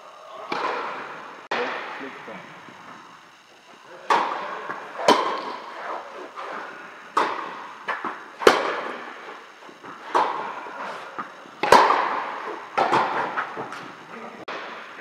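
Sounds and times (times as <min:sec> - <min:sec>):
rackets striking tennis ball: 0:00.4 - 0:02.0, 0:04.0 - 0:13.9
tennis ball bouncing: 0:04.1 - 0:06.5, 0:07.1 - 0:09.0, 0:09.8 - 0:10.4, 0:11.2 - 0:13.8.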